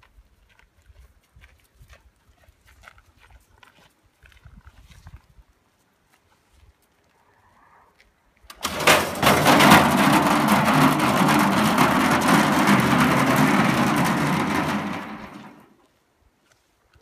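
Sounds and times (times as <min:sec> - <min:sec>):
steel barrel rolling on gravel: 0:08.5 - 0:15.9.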